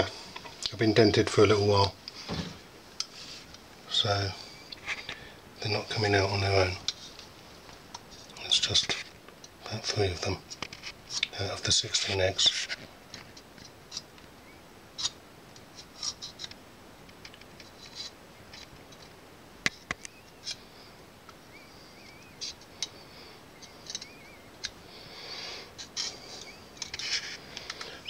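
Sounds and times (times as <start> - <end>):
faint high chirps: 21.4 - 22.6.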